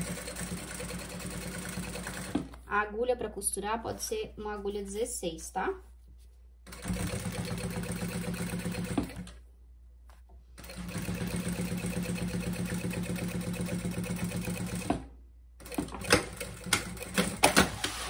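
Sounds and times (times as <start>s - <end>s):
sewing machine stitching: 0.0s - 2.5s, 6.7s - 9.3s, 10.6s - 18.0s.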